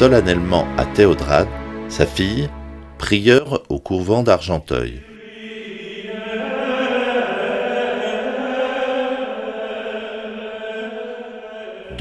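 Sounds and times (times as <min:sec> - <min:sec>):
choir chanting held notes: 0:05.0 - 0:12.0.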